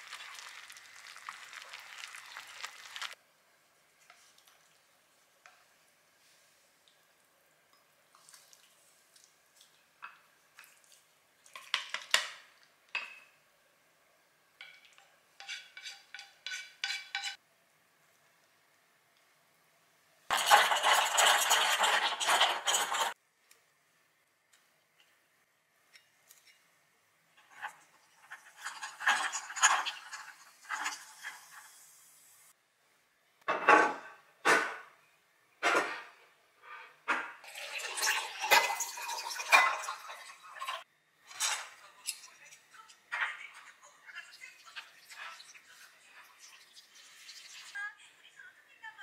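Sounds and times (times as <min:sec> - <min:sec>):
soft wet sauce sounds: 0:00.0 - 0:13.4.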